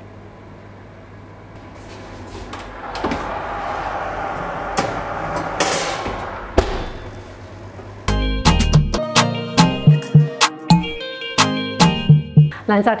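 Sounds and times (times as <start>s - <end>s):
oven door opening: 2.1s - 7.7s
steady rushing noise: 2.1s - 8.1s
oven door shutting: 2.3s - 7.5s.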